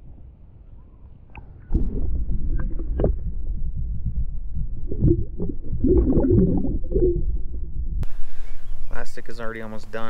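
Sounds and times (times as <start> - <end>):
underwater knocks: 1.7 - 7.8
muffled underwater water sloshing: 1.7 - 8.8.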